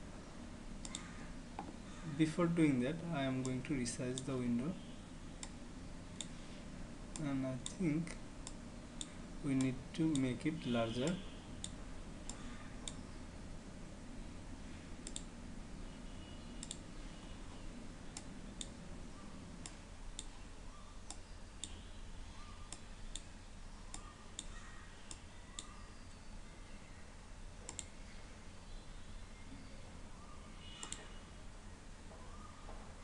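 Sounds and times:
low steady hum: 0.0s - 33.0s
computer mouse button clicks: 27.7s - 27.9s, 30.8s - 31.1s.

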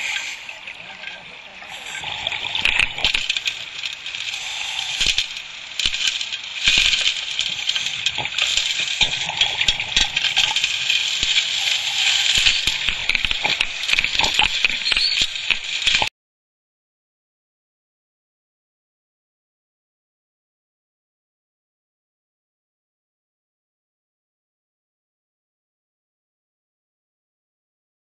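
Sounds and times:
underwater debris crackling in suction: 0.0s - 0.5s, 1.7s - 16.1s.

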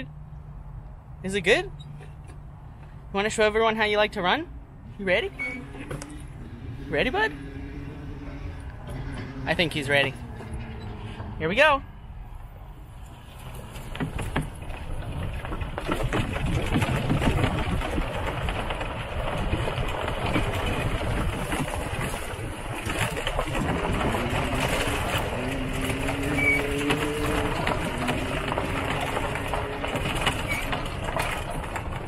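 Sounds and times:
wind buffeting microphone: 4.6s - 32.0s
low droning tone: 4.8s - 13.0s.

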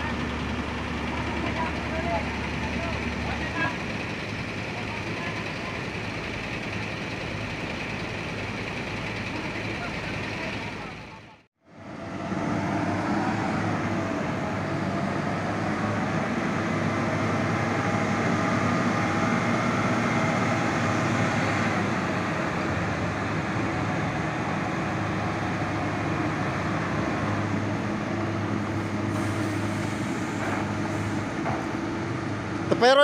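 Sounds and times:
truck diesel engine under load: 0.0s - 33.0s.

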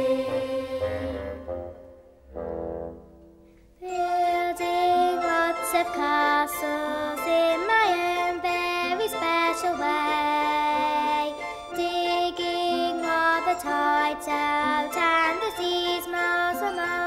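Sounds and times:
film score music: 0.0s - 6.0s.

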